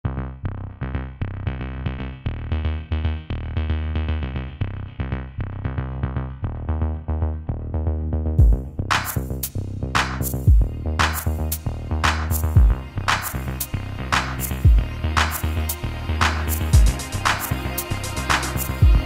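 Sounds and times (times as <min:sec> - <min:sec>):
synthesizer chords: 0:06.3 - 0:19.0
drum machine beat: 0:08.4 - 0:19.0.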